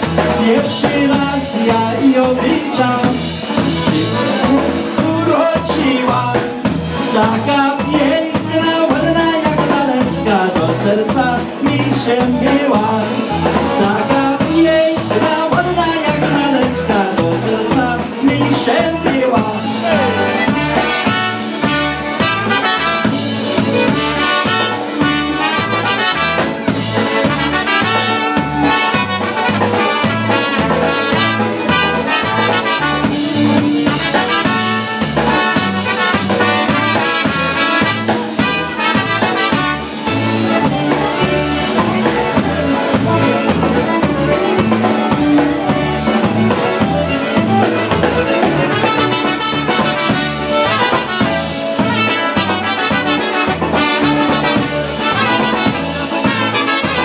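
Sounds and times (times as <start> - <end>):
concertina playing lead: 0.0 - 57.0
polka band playing: 0.0 - 57.0
trumpets playing melody: 18.6 - 57.0.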